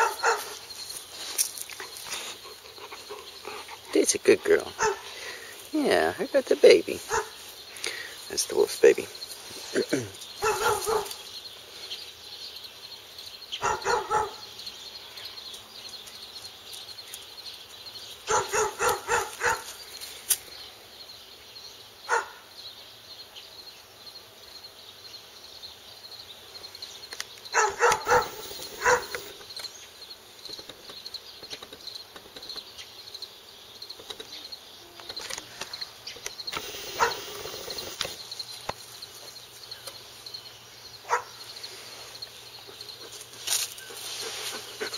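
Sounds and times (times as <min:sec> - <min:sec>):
wolf calling: 0:00.0 - 0:00.7, 0:01.8 - 0:06.0, 0:06.6 - 0:07.4, 0:09.6 - 0:11.3, 0:13.6 - 0:14.4, 0:18.3 - 0:19.7, 0:27.5 - 0:29.3, 0:36.5 - 0:38.1.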